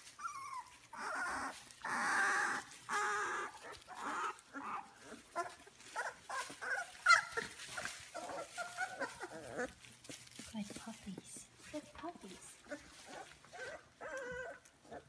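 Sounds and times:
puppies whining and squealing: 0.0 - 9.9, 12.6 - 15.0
wood shavings rustling: 0.0 - 14.7.

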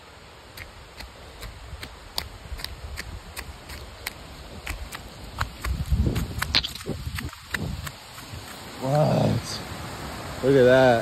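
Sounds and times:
sandal footsteps on dirt trail: 0.6 - 9.0.

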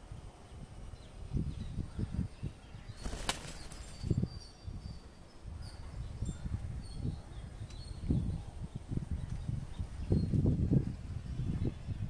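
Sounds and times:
bird ruffling feathers: 3.0 - 4.1.

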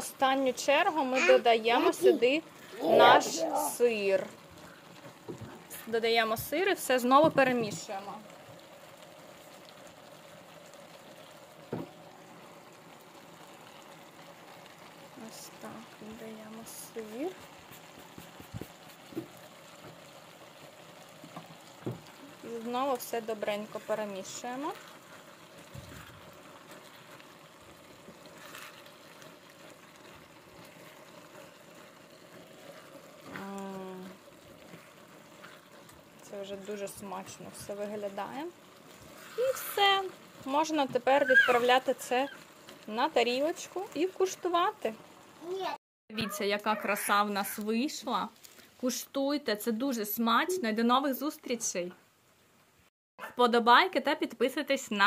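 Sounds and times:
sauce simmering in a frying pan: 0.0 - 55.0
spatula stirring: 17.0 - 20.0, 20.6 - 44.6.

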